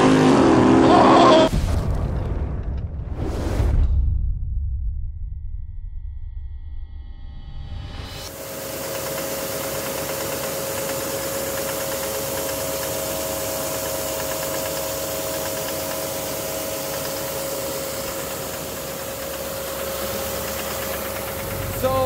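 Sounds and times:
steady whine: 5.6s - 22.0s
diesel engine running: 8.0s - 22.0s
engine knocking: 8.3s - 22.0s.

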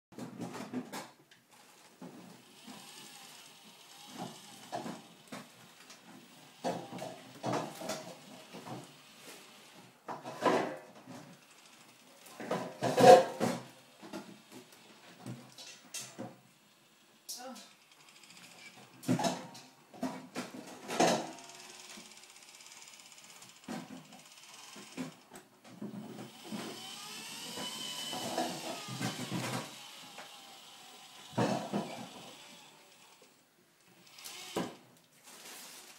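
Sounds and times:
electric motors whirring: 1.5s - 34.9s
tracks clattering on wood: 12.4s - 16.4s.

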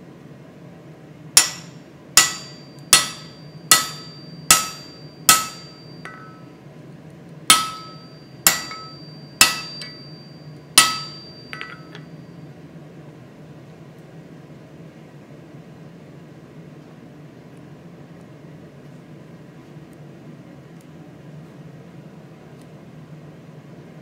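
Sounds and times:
hammer ringing on metal: 1.4s - 6.5s, 7.5s - 12.1s.

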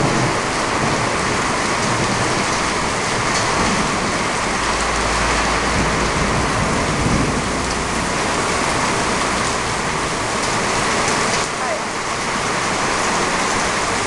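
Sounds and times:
heavy rain pouring: 0.0s - 14.0s
low thunder rumble: 0.0s - 14.0s.

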